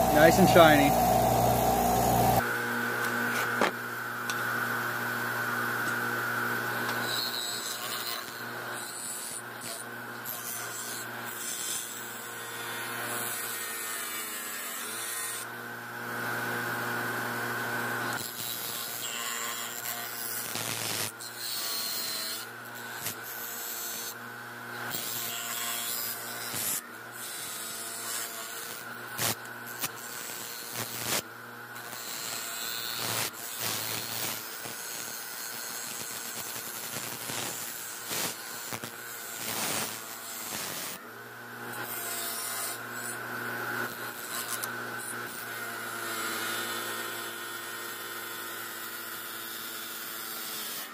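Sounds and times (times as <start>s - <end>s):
bench grinder humming: 0.0s - 2.4s
wire wheel scrubbing metal: 0.0s - 2.4s.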